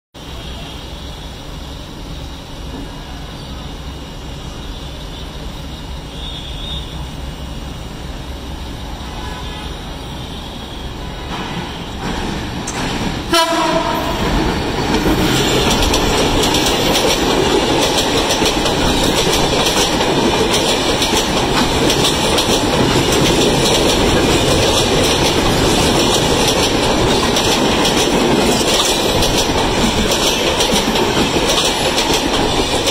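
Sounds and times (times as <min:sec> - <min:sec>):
train rumbling: 0:00.2 - 0:32.9
train horn blast: 0:09.1 - 0:11.9, 0:13.2 - 0:14.4
train wheels clattering: 0:11.1 - 0:32.9.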